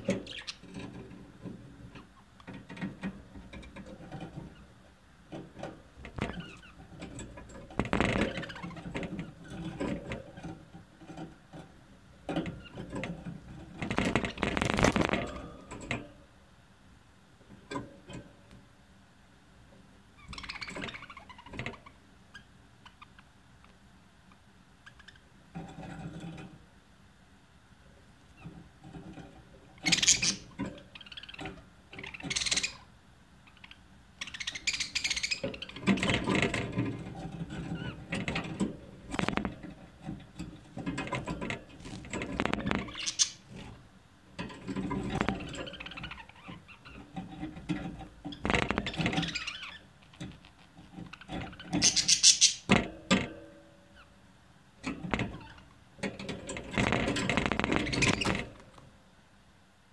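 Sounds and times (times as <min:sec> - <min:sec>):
budgerigars chattering: 0:29.8 - 0:31.4, 0:33.6 - 0:35.8, 0:42.5 - 0:43.4, 0:51.7 - 0:52.7.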